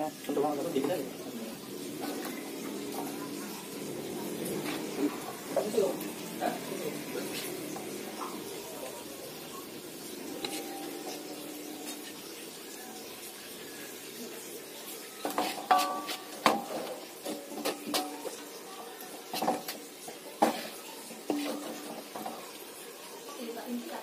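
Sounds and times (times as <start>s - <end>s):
metal ladle clinking and scraping: 15.3s - 18.3s, 20.4s - 22.4s.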